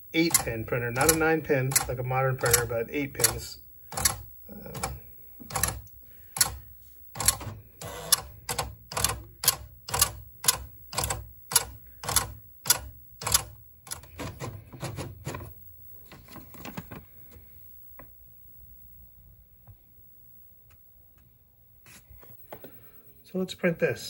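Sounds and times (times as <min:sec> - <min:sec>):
dot-matrix printer printing: 0:00.0 - 0:15.5.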